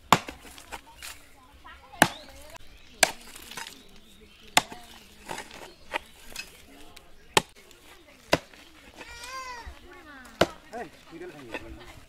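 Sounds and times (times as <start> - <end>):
hoe chopping into hard earth: 0.0 - 1.2, 2.0 - 3.9, 4.5 - 6.6, 7.3 - 7.7
soil clods knocking: 0.0 - 1.2, 2.0 - 9.6.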